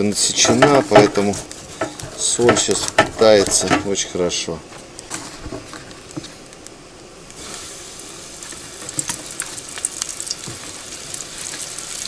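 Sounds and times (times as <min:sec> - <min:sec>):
oil crackling and popping: 0:05.0 - 0:12.0
fish sizzling in hot oil: 0:07.4 - 0:12.0.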